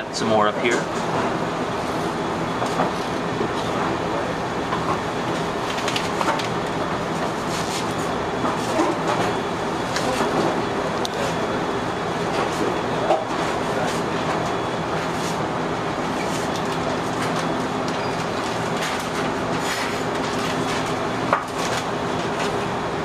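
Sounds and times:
mechanical hum and rumble: 0.0 - 23.0.

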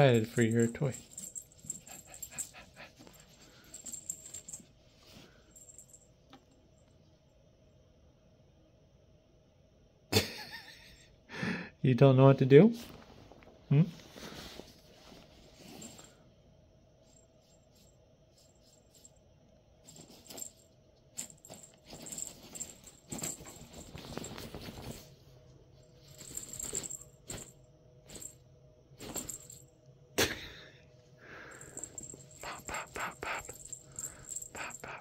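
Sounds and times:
cat toy rattling and clicking: 0.6 - 4.5.

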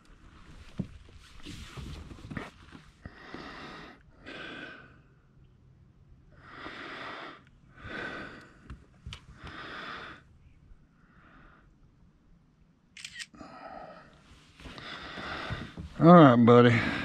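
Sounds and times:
person breathing: 3.0 - 5.2, 6.4 - 8.7, 9.3 - 10.3, 10.9 - 11.8, 13.4 - 16.0, 16.6 - 17.0.

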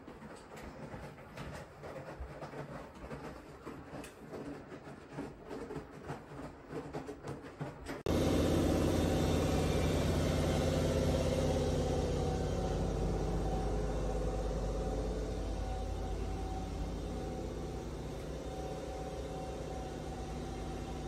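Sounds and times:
mechanical hum with low drone: 8.1 - 21.0.

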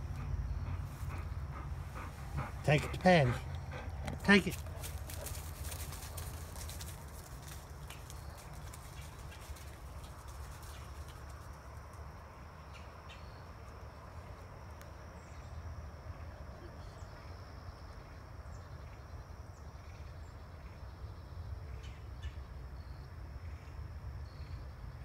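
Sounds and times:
faint high-pitched insect drone: 4.9 - 25.0.

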